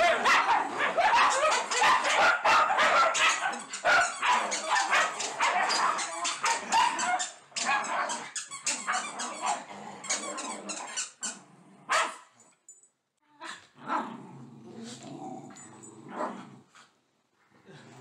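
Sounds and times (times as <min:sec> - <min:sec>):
dogs barking: 0:00.0 - 0:09.6, 0:11.9 - 0:12.2
dogs growling: 0:00.0 - 0:11.9, 0:13.4 - 0:16.8.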